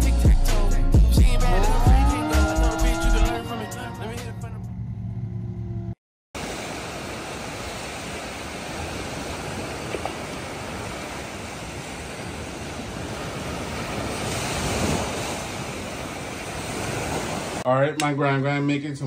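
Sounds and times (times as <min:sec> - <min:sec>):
surf washing up a beach: 0:06.4 - 0:17.6
wave breaking: 0:06.4 - 0:17.6.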